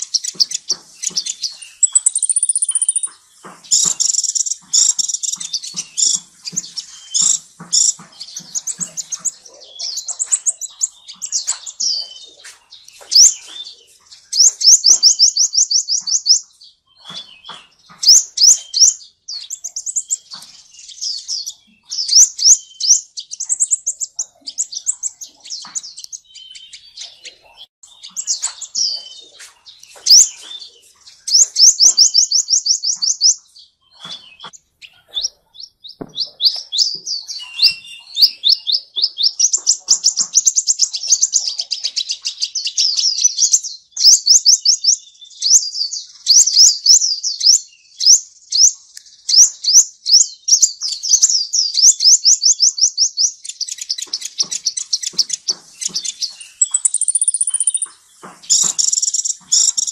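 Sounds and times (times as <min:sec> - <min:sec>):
sunbird trilling: 0:00.0 - 0:16.4, 0:17.2 - 0:41.3, 0:53.5 - 0:59.9.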